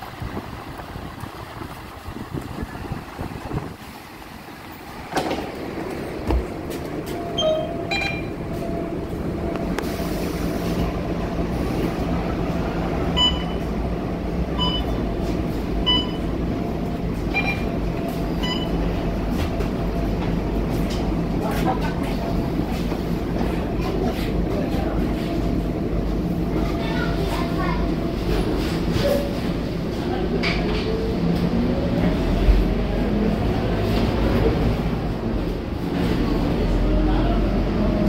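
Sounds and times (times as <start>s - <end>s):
bus diesel engine humming: 0.0s - 38.0s
card reader beeps: 7.3s - 8.4s, 13.2s - 13.6s, 14.6s - 15.0s, 15.9s - 16.3s, 17.3s - 17.7s, 18.4s - 18.8s.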